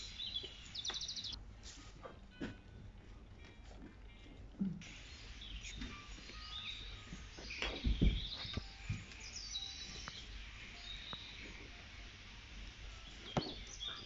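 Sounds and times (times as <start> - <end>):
small birds chirping: 0.0 - 1.4, 4.8 - 14.0
steady hiss: 0.0 - 2.0, 4.8 - 14.0
soft low thumps: 6.7 - 10.3.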